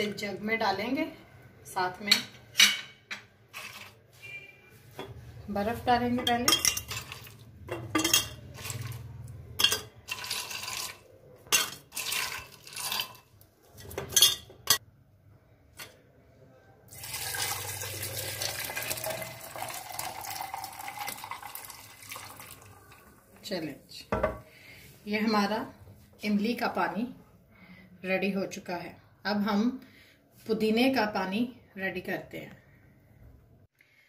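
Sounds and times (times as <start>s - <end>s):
ice cubes clinking into glass jug: 6.6s - 7.4s, 9.6s - 13.3s
liquid pouring over ice: 10.1s - 11.0s, 11.9s - 13.2s, 16.9s - 23.1s.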